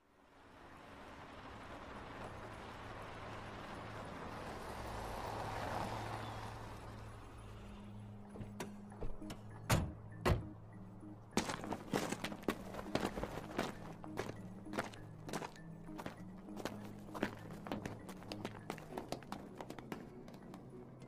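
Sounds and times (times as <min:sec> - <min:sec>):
sharp footsteps: 0:11.4 - 0:21.0.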